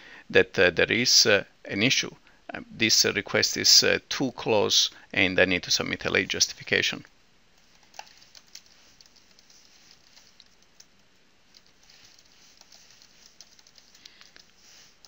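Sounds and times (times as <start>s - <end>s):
keyboard typing: 7.6s - 15.0s.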